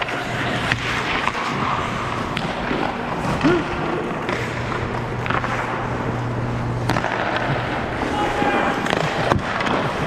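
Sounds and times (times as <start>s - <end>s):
low steady hum: 0.0s - 10.0s
skates scraping on ice: 0.0s - 10.0s
person shouting: 8.0s - 8.8s.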